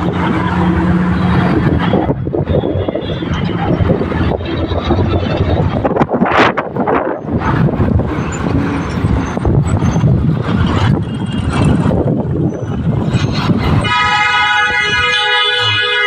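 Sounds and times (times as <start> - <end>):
road traffic rumble: 0.0 - 16.0
vehicle horn: 13.8 - 16.0.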